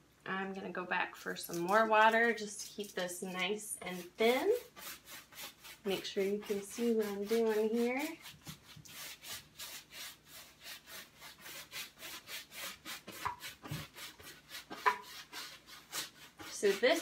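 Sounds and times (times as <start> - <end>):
paintbrush scrubbing canvas: 2.6 - 17.0.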